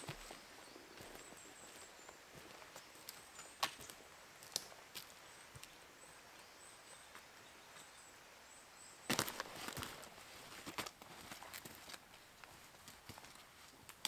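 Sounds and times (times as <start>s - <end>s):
footsteps on forest floor: 0.0s - 5.8s, 9.1s - 13.9s
steady outdoor hiss: 0.0s - 14.0s
twigs snapping: 9.1s - 10.0s.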